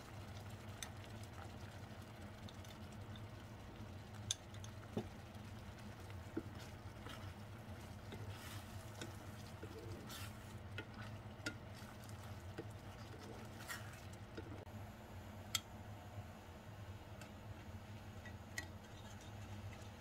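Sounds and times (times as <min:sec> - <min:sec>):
water simmering: 0:00.0 - 0:14.7
faint sizzle: 0:00.0 - 0:20.0
steady low hum: 0:00.0 - 0:20.0
spatula scraping a pan: 0:06.2 - 0:14.6.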